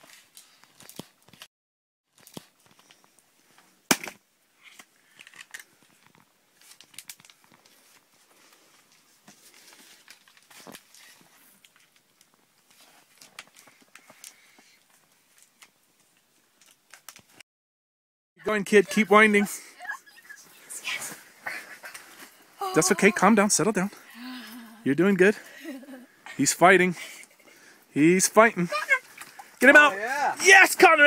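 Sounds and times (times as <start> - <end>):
winter clothing rustling: 18.5 - 31.0.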